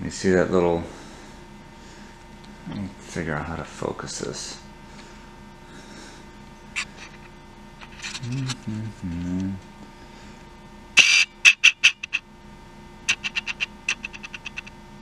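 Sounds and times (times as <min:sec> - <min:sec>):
man humming: 0:08.0 - 0:09.6
sharp clicks: 0:13.1 - 0:14.7.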